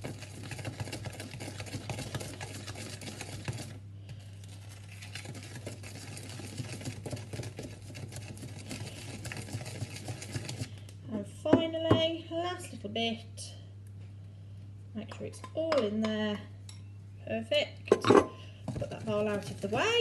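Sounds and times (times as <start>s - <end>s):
spoon scraping mixing bowl: 0.0s - 10.8s, 17.9s - 20.0s.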